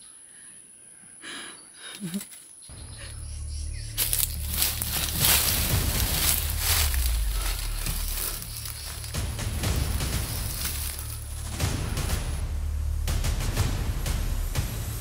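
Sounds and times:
low steady drone: 2.7s - 15.0s
loud rushing hiss: 3.8s - 15.0s.

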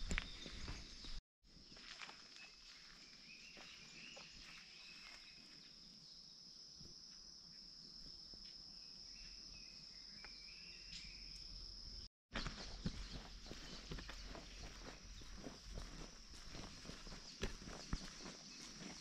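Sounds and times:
faint footsteps: 12.4s - 19.0s.

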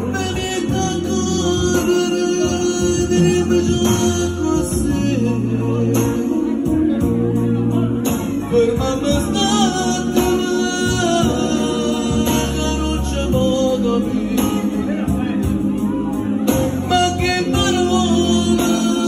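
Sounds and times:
backing music with bass line: 0.0s - 19.0s
man singing into a microphone: 0.0s - 19.0s.

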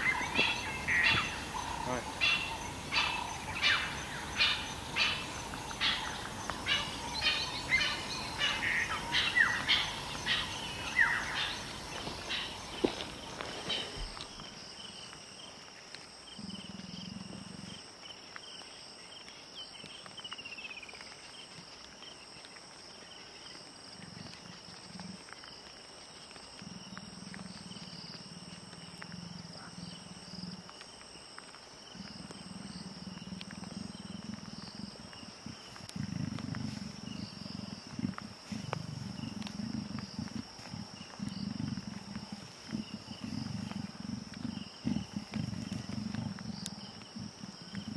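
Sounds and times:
leopard growling: 0.0s - 14.5s, 31.9s - 47.9s
insects trilling: 0.0s - 47.9s.

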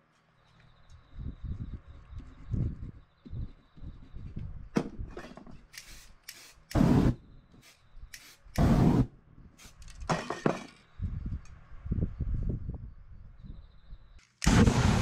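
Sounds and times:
flame bursts hissing whoosh: 8.6s - 9.8s, 14.5s - 15.0s.

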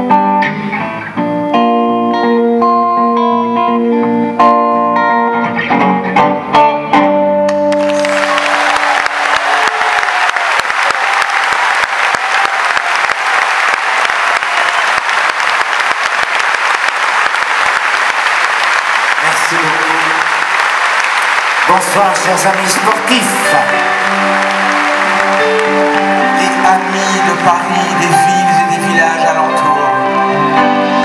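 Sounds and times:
audience applause: 7.7s - 29.3s
band playing pop song: 21.7s - 31.0s.

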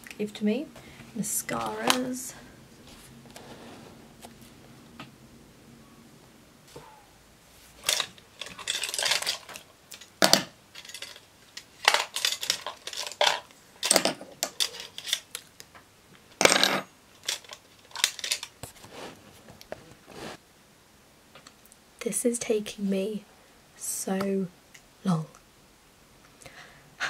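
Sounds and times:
makeup tubes clicking and clattering: 7.8s - 15.5s, 16.4s - 18.6s.

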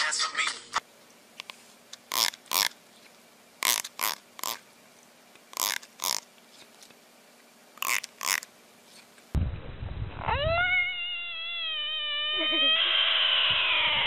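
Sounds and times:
fingernail strumming plastic comb: 7.8s - 8.4s.

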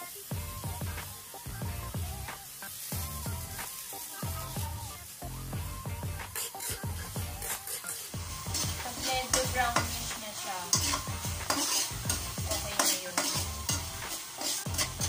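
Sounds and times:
meat sizzling in hot oil: 0.0s - 15.0s
spatula scraping a pan: 6.2s - 15.0s.

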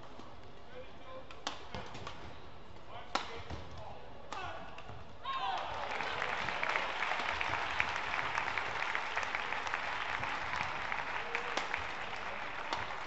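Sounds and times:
crowd clapping: 5.6s - 13.0s
racket striking shuttlecock: 12.7s - 13.0s.

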